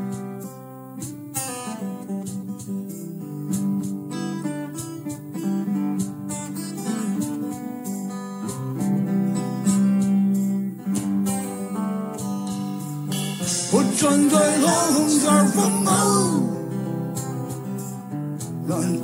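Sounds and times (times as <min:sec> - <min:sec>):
acoustic guitars strumming: 0:00.0 - 0:19.0
rock band playing: 0:08.6 - 0:18.6.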